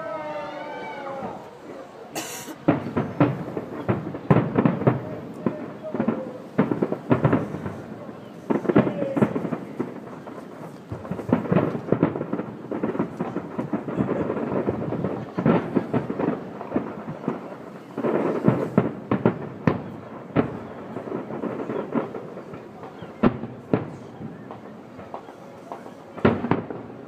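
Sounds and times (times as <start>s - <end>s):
firework bangs with echoes: 2.2s - 27.0s.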